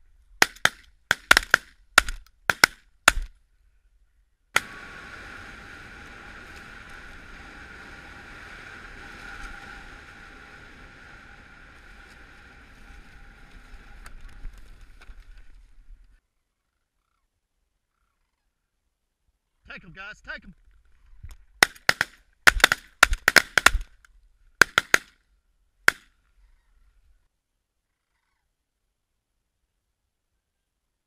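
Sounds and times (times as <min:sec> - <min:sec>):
shotgun shots: 0:00.4 - 0:03.3, 0:21.6 - 0:23.8, 0:24.6 - 0:25.1
faint hum: 0:03.6 - 0:16.2
steady hiss: 0:04.6 - 0:16.2.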